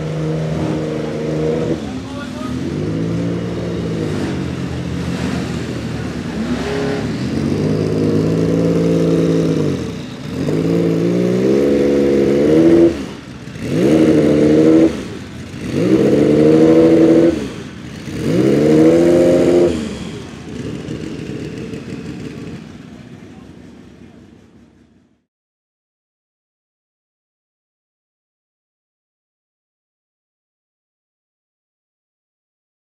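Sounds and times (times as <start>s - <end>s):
car engine idling: 0.0s - 25.2s
car engine revving: 0.0s - 25.2s.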